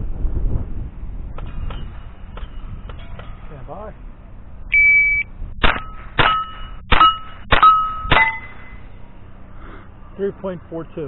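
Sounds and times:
shot timer beep: 4.7 - 8.8
steel target ringing: 4.8 - 9.3.

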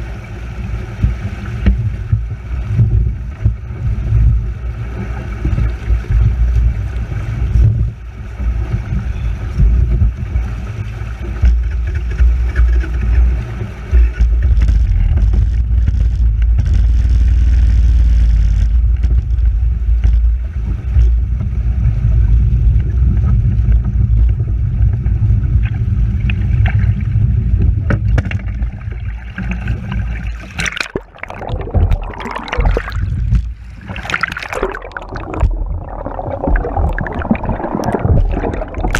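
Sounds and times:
underwater sloshing and gurgling: 0.0 - 38.9
heavy low rumble: 13.3 - 38.9
river water rushing: 30.4 - 38.9.

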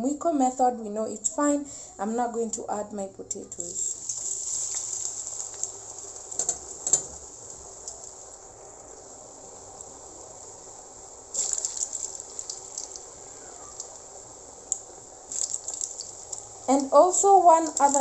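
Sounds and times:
potatoes sizzling in hot oil: 3.6 - 18.0
crackling oil pops: 11.3 - 13.1, 14.7 - 16.5.

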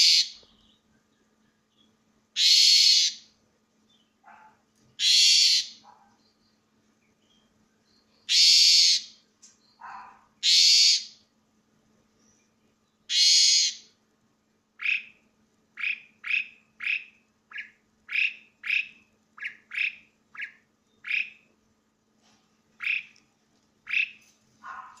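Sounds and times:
starling calling: 0.0 - 0.8, 2.4 - 3.3, 4.2 - 6.3, 8.2 - 11.2, 13.1 - 13.9, 14.8 - 15.2, 15.8 - 21.5, 22.8 - 23.2, 23.8 - 25.0.

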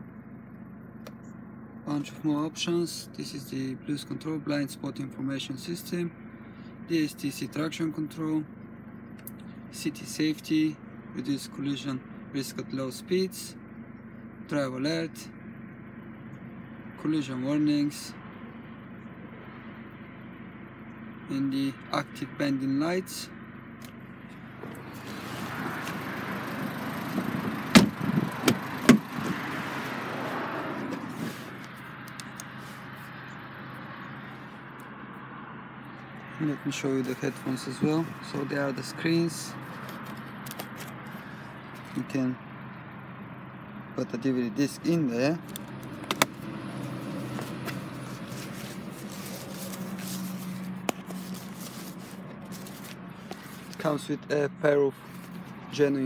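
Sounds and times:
car cabin hum: 0.0 - 56.0
car door clunks: 27.1 - 29.4, 45.6 - 46.4
rustling movement: 30.2 - 33.2, 39.5 - 42.0, 45.4 - 54.1, 54.9 - 55.8.

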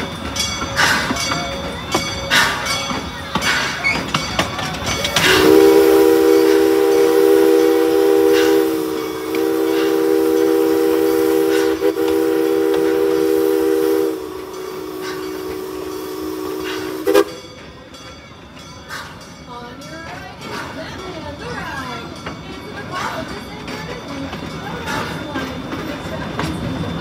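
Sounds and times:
steam locomotive whistle: 5.1 - 17.6.

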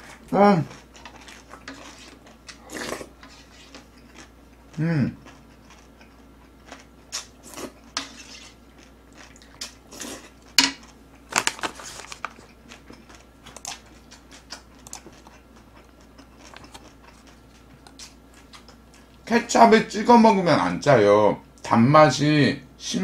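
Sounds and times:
person chewing with wet smacks: 0.0 - 11.2, 12.2 - 19.2.

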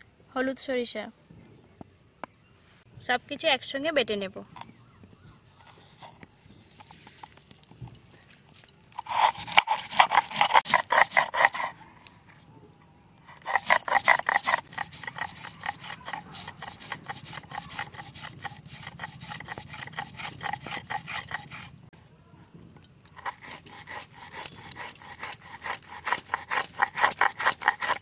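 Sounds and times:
stone scraping on grinding stone: 9.0 - 11.8, 13.3 - 21.9, 23.0 - 28.0.

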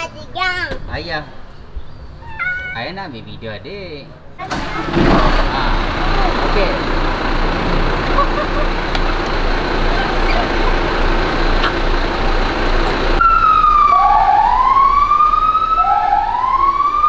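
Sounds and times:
steady rumbling noise: 4.6 - 13.8
fire engine siren wailing: 13.1 - 17.0.

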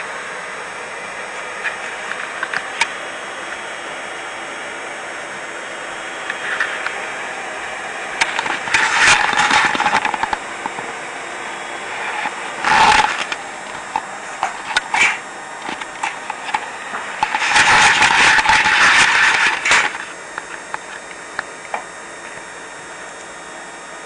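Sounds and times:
toy train mechanisms whirring: 8.2 - 10.8, 11.7 - 21.0.

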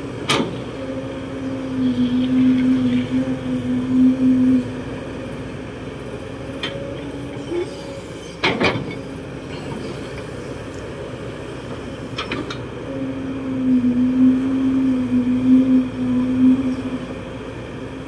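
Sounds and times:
excavator engine and hydraulics: 0.0 - 18.0
loud steady whine: 0.0 - 18.0.

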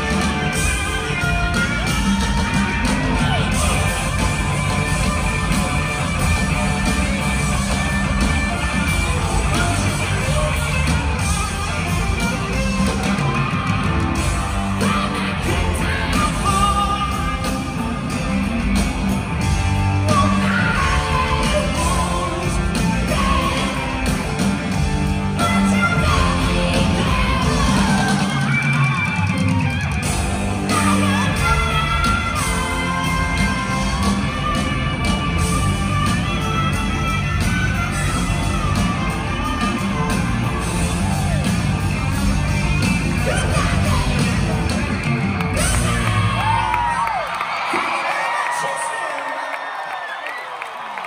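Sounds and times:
live rock band playing: 0.0 - 47.6
man singing: 14.8 - 18.0, 25.3 - 28.6.

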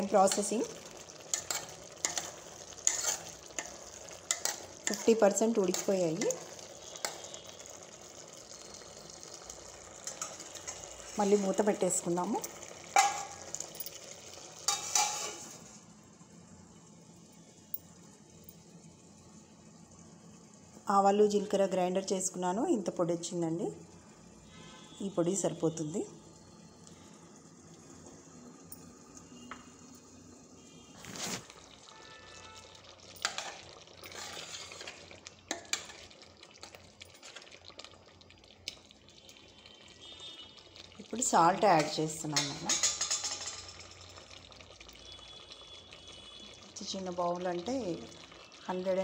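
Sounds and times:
faint steady hiss: 0.0 - 49.0
metal lid clinking on pot: 13.0 - 14.0, 41.8 - 43.9.

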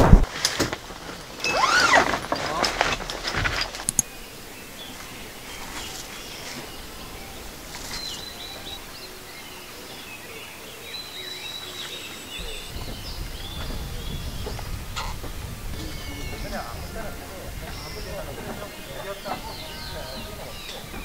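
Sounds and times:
faint outdoor hiss: 0.0 - 21.0
small birds chirping: 0.1 - 21.0
low rumble: 12.4 - 18.7.

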